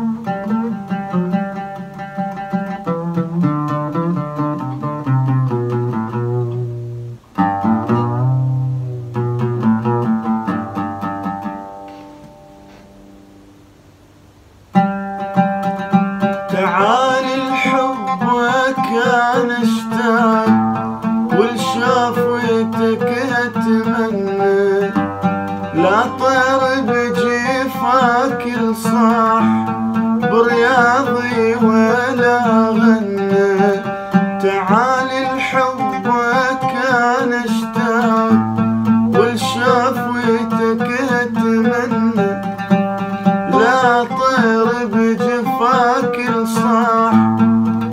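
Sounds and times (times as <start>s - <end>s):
man singing: 0.0s - 3.4s, 16.2s - 47.9s
oud plucked notes: 0.0s - 47.9s.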